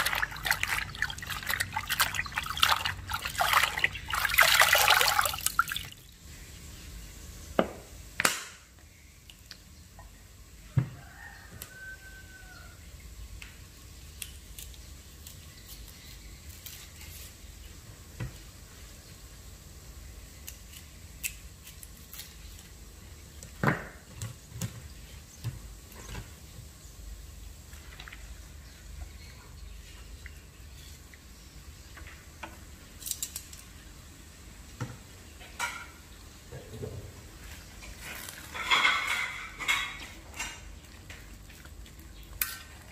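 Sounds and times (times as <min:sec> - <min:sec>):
water splashing in metal bowl: 0:00.0 - 0:06.1.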